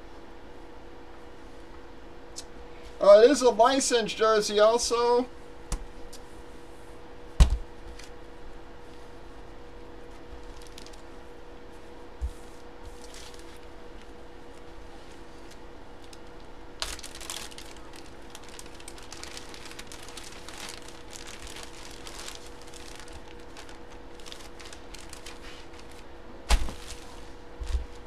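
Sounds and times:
faint steady hum: 0.0s - 28.0s
plastic bag crinkling: 10.2s - 11.2s, 12.9s - 28.0s
dull thump: 26.5s - 26.9s.

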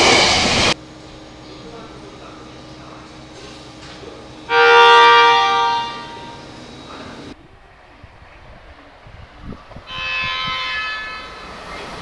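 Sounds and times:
station background noise: 0.0s - 10.0s, 10.8s - 12.0s
train horn blast: 4.5s - 6.4s, 9.9s - 11.7s.

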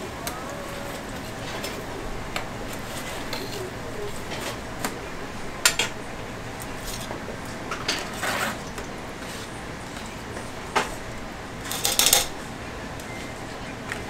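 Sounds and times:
metal tongs clanking on fryer: 1.4s - 8.9s, 11.6s - 12.4s.

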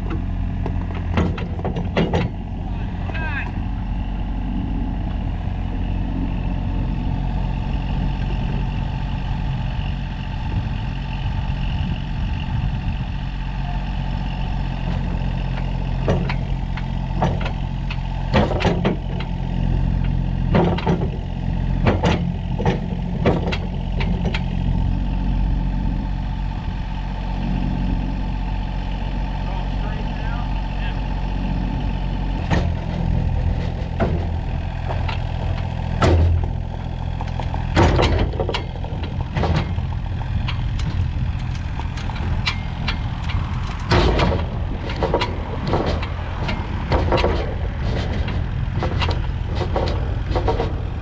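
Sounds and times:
diesel engine running: 0.0s - 51.0s
sharp metal clanks: 40.5s - 50.8s.

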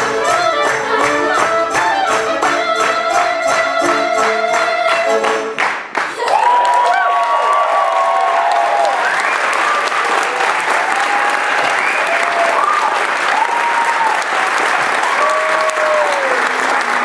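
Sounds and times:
audience clapping: 0.0s - 17.0s
cheers and whoops: 6.2s - 17.0s.

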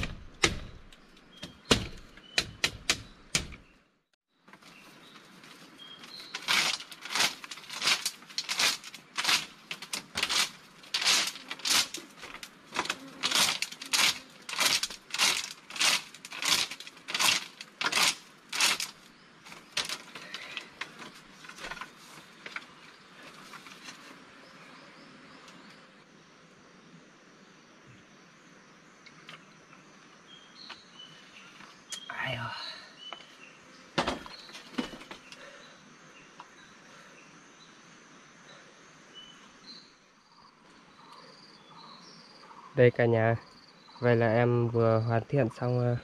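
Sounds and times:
blade chopping wood: 0.0s - 3.7s.

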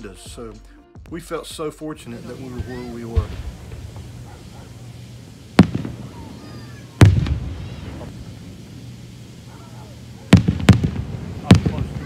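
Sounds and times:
fireworks booming: 2.1s - 12.0s
rumbling echo: 2.4s - 12.0s.

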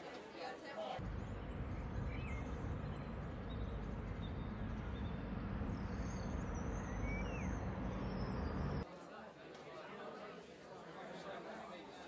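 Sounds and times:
distant traffic: 1.0s - 8.8s
faint high chirps: 1.0s - 8.8s
wind rumble: 1.0s - 8.8s.

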